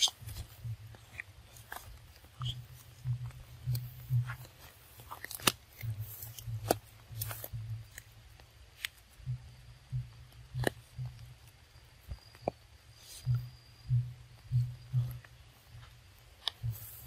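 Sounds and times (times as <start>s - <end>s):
twigs snapping: 0.0s - 8.1s.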